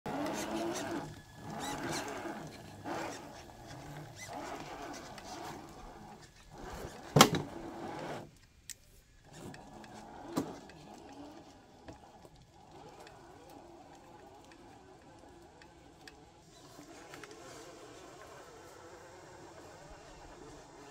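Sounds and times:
toy truck motor whining: 0:00.1 - 0:08.5, 0:09.1 - 0:20.9.

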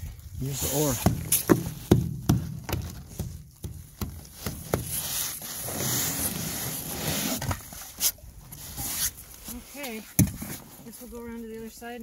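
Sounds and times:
ice chipping on metal boat: 0:00.5 - 0:06.9
ice scraping on metal: 0:04.3 - 0:11.0.

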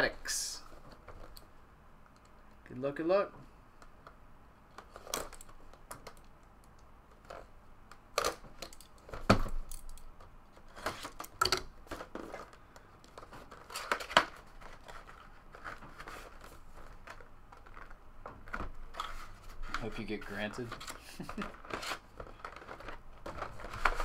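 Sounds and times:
wrapping rustling: 0:08.3 - 0:24.0
plastic wrapping tearing and crinkling: 0:10.7 - 0:19.9, 0:20.5 - 0:24.0.

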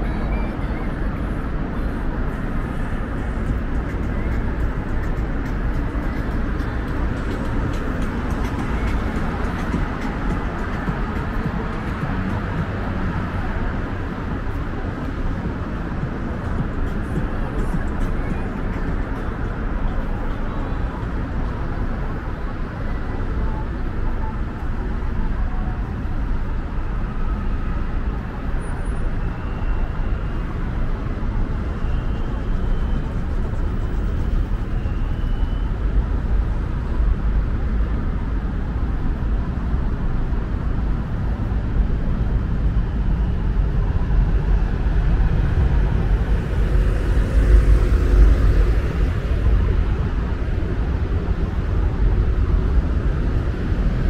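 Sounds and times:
rumble of passing cars: 0:00.0 - 0:54.0.

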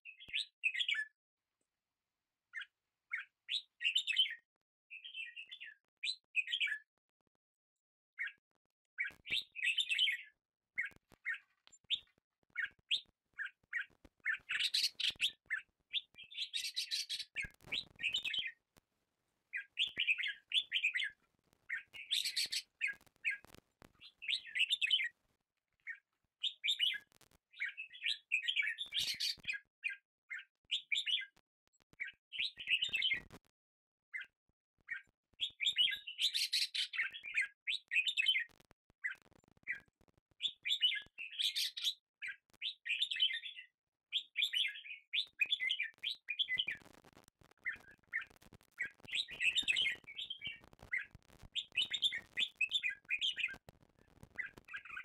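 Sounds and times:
birds chirping: 0:02.6 - 0:06.8, 0:09.0 - 0:18.6, 0:19.5 - 0:25.2, 0:25.8 - 0:31.4, 0:32.0 - 0:33.3, 0:47.6 - 0:53.6, 0:54.4 - 0:55.0.

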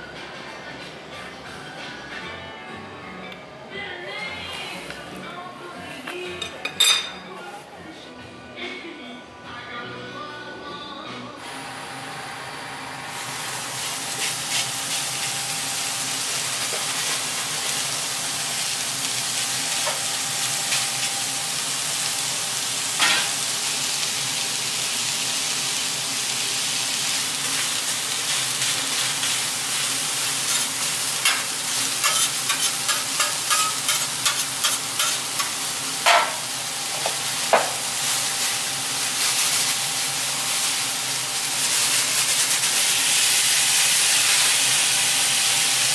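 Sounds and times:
vegetables sizzling on a griddle: 0:11.4 - 0:45.9
spatula clicks and scrapes on steel: 0:32.0 - 0:35.5.

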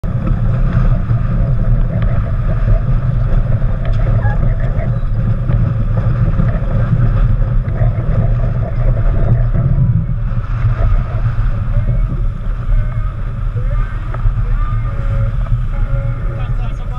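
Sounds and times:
water rushing along hull: 0:00.0 - 0:16.9
wind buffeting microphone: 0:00.0 - 0:16.9.

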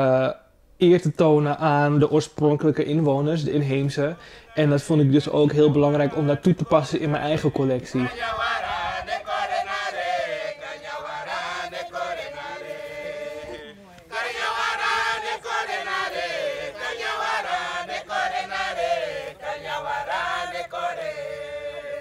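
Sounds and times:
group of voices chanting: 0:08.0 - 0:22.0.

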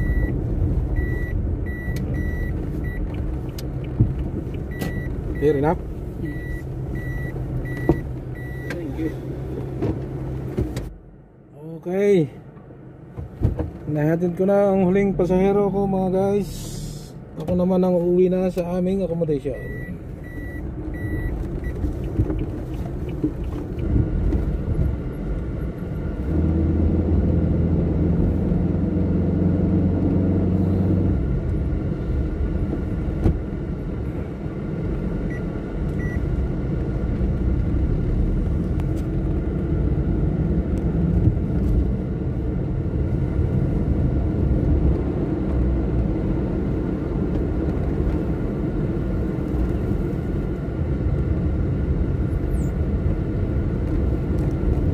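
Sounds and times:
high beeps: 0:00.0 - 0:00.4, 0:01.0 - 0:03.0, 0:04.7 - 0:05.6, 0:06.2 - 0:08.9, 0:19.5 - 0:21.8
vehicle engine and road noise: 0:00.0 - 0:54.9.

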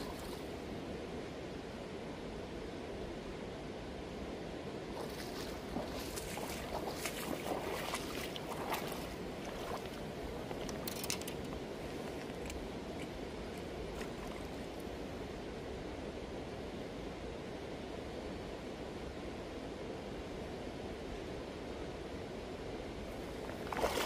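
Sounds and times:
splashes and sloshes in water: 0:00.0 - 0:00.7, 0:04.9 - 0:15.2, 0:23.1 - 0:24.0
shallow river running: 0:00.0 - 0:24.0.

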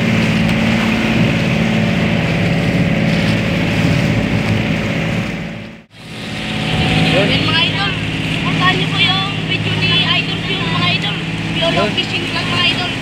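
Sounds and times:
boat engine running: 0:00.0 - 0:13.0
water rushing past hull: 0:00.0 - 0:13.0
wind rushing: 0:00.9 - 0:10.0.

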